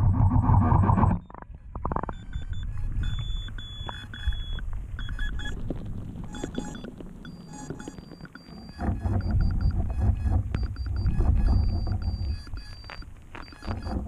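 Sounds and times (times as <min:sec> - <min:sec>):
muffled underwater rumbling: 0:00.0 - 0:14.0
short high electronic beeps: 0:02.0 - 0:05.6, 0:06.3 - 0:14.0.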